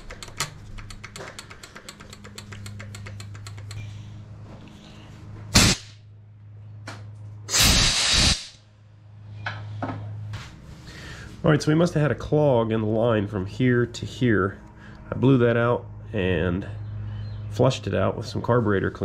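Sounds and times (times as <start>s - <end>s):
compressed air hissing blasts: 5.5s - 6.0s, 7.5s - 8.6s
low steady hum: 8.5s - 19.0s.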